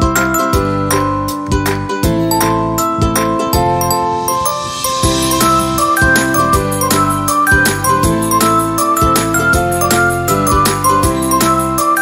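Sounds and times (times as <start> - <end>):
melody over steady beat: 2.3 - 11.5.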